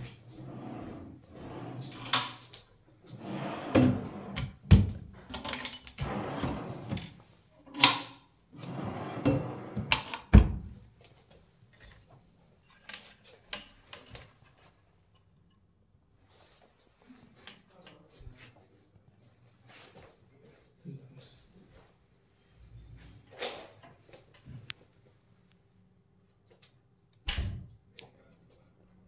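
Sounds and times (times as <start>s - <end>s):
drawer rolling on metal slides: 0.3s - 2.4s, 3.1s - 4.6s, 5.4s - 7.1s, 8.6s - 10.1s.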